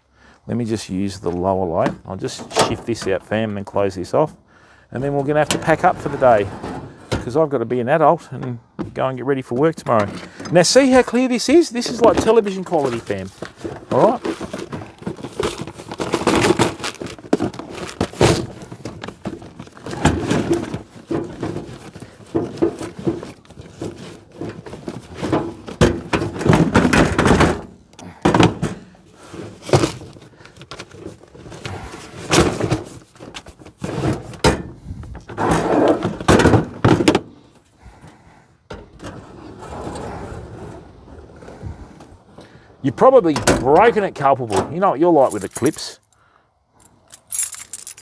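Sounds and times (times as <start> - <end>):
rustling: 10.6 - 27.4
plastic tackle box knocks and rattles: 13.4 - 28.9.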